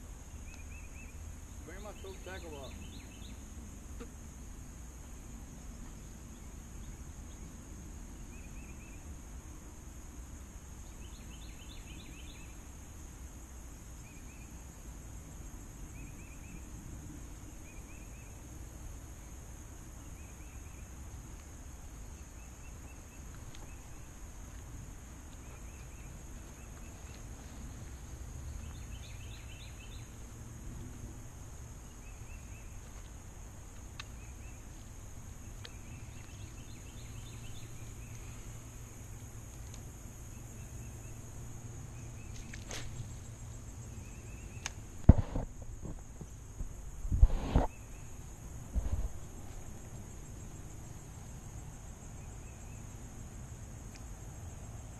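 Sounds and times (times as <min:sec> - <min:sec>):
steady high hiss: 0:00.0 - 0:54.9
bird chirping: 0:00.3 - 0:03.4, 0:10.8 - 0:12.6, 0:28.4 - 0:30.2, 0:35.4 - 0:38.7, 0:43.8 - 0:44.8
low wind rumble: 0:42.9 - 0:54.9.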